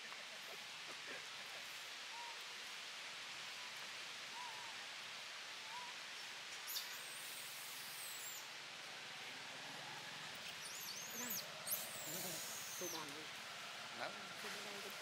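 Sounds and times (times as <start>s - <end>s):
steady high hiss: 0.0s - 15.0s
faint animal calls: 3.5s - 4.9s, 9.6s - 15.0s
high-pitched chirping calls: 10.6s - 13.2s.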